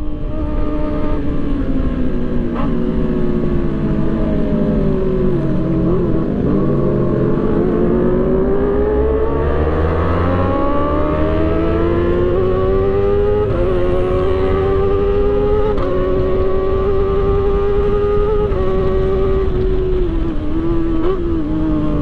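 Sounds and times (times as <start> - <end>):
motorcycle engine revving: 0.0 - 22.0
wind rush: 11.2 - 22.0.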